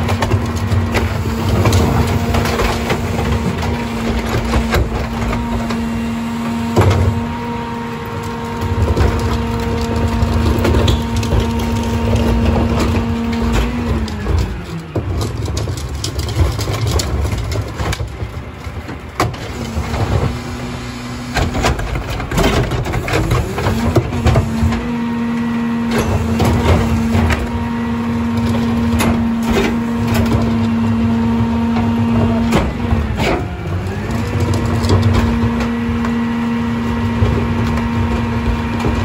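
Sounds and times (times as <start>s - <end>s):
carts banging against hopper: 0.0s - 39.0s
trash falling: 0.0s - 39.0s
truck engine humming: 0.0s - 39.0s.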